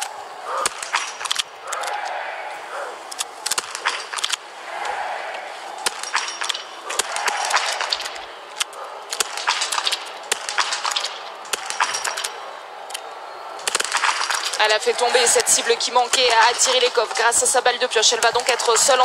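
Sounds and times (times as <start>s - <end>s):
crowd noise: 0.0s - 19.0s
rifle shots cracking: 0.6s - 2.0s, 3.1s - 4.4s, 5.8s - 12.4s, 13.6s - 17.2s.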